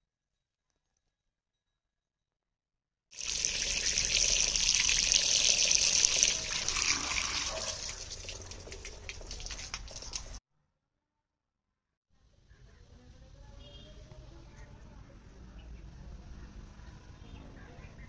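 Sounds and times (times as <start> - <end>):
running water splashing: 3.2 - 10.4.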